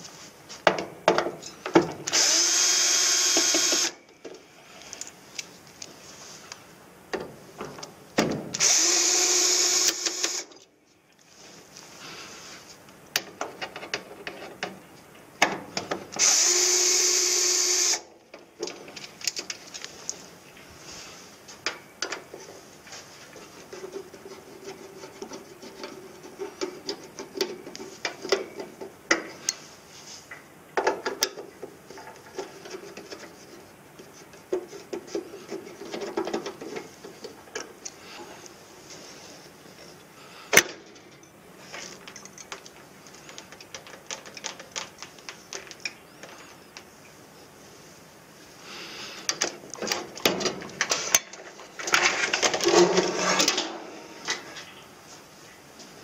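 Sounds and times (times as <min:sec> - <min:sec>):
cordless drill running: 0:02.1 - 0:04.0, 0:08.6 - 0:10.5, 0:16.2 - 0:18.0
screwdriver turning screws: 0:02.1 - 0:04.0, 0:08.6 - 0:10.5.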